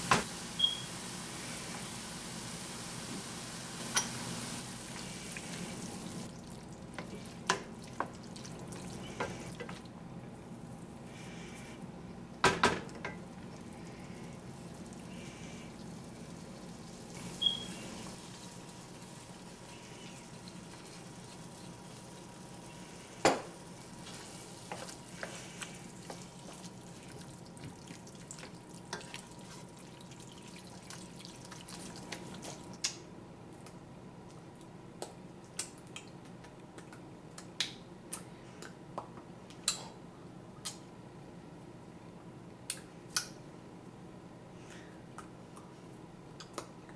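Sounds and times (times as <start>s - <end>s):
meat sizzling in a pot: 0.0s - 9.6s, 13.3s - 32.7s.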